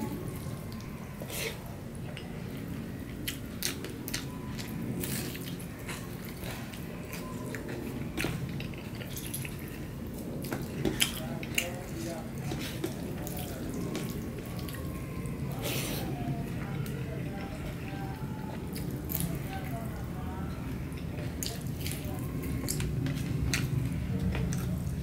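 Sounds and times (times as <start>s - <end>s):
low background noise: 0.0s - 25.0s
chewing and lip smacks: 3.1s - 14.9s.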